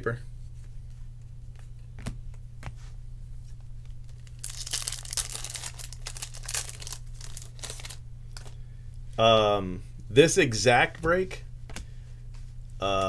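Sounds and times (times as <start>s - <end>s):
steady low hum: 0.0s - 13.0s
foil wrapper tearing and crinkling: 4.0s - 8.5s.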